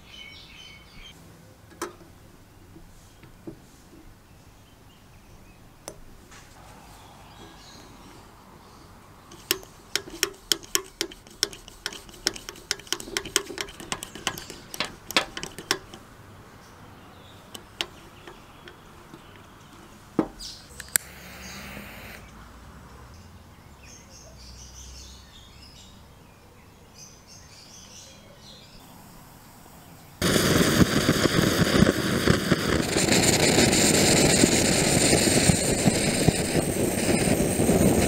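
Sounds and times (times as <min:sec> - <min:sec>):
metal fittings clicking: 0:09.3 - 0:16.1.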